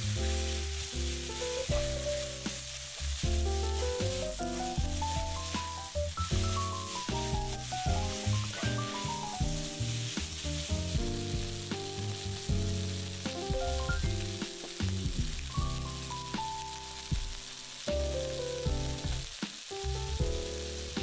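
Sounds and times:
wooden spatula scraping: 0.0 - 13.8
gentle background music: 0.0 - 21.0
vegetables sizzling in oil: 0.0 - 21.0.

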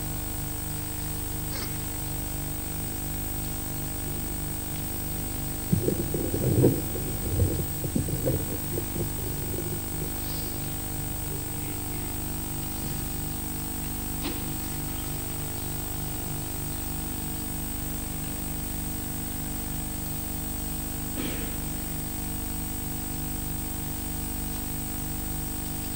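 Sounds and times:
low electrical hum: 0.0 - 25.9
muffled low knocks and rumbles: 5.7 - 12.0.

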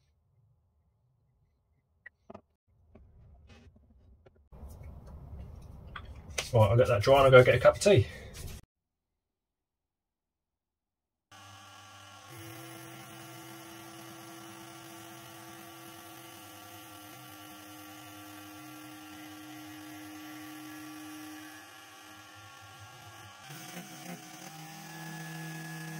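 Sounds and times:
lathe humming and whining: 11.4 - 25.9.

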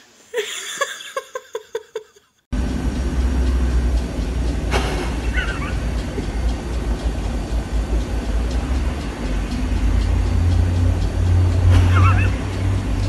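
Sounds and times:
steady low rumble: 2.5 - 13.0
wavering high chirp: 5.2 - 5.9, 11.9 - 12.5.

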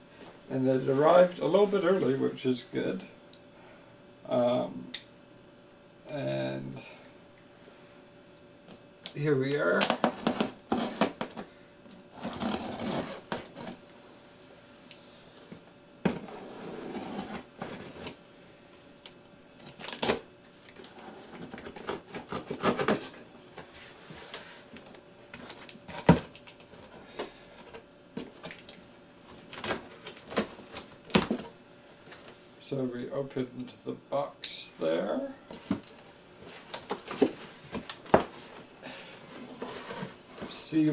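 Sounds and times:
packing tape being slit: 9.7 - 13.8, 19.6 - 20.2
cardboard scraping and rustling: 10.0 - 11.3, 12.1 - 13.8, 16.0 - 18.2, 20.8 - 24.8, 35.6 - 40.9.

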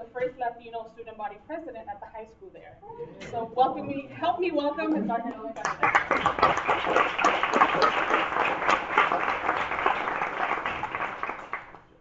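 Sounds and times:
audience applauding: 5.6 - 11.9.

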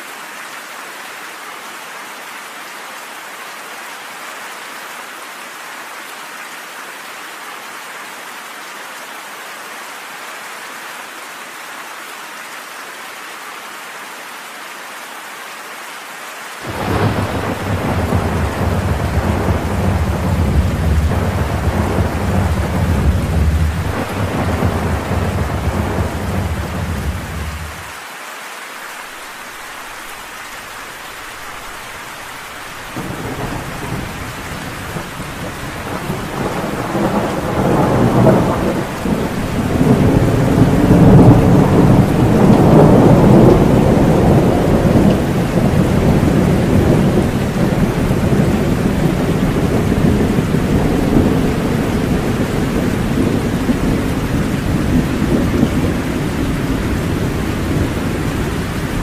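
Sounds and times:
heavy rain: 0.0 - 59.0
rolling thunder: 16.6 - 27.9, 31.7 - 59.0.

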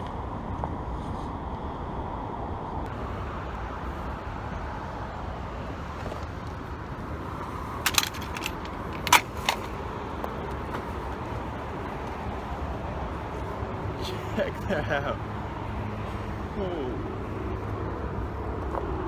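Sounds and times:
distant road traffic: 0.0 - 19.0
sharp clicks or knocks: 7.8 - 9.7.

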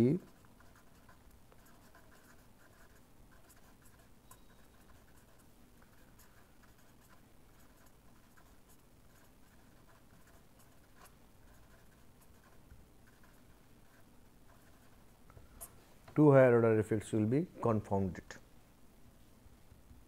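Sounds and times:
pen scratching on paper: 0.0 - 15.2.

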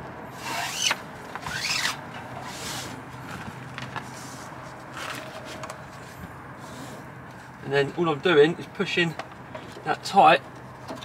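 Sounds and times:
strap zipping through buckle: 0.4 - 2.9.

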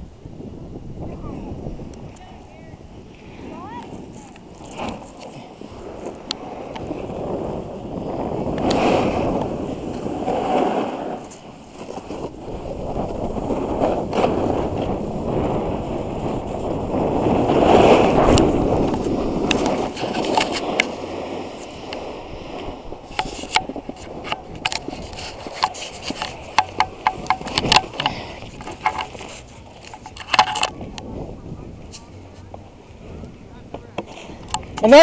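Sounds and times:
snowboard scraping over snow: 0.3 - 35.0
sharp clicks and knocks: 23.1 - 30.8.

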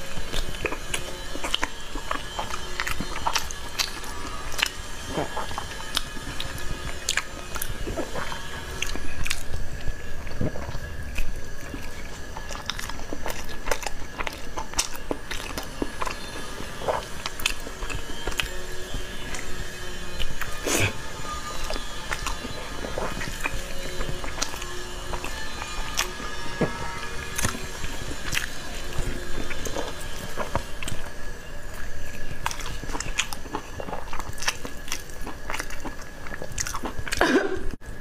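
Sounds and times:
faint steady high tone: 0.0 - 35.1
person chewing soft food: 0.0 - 38.0.

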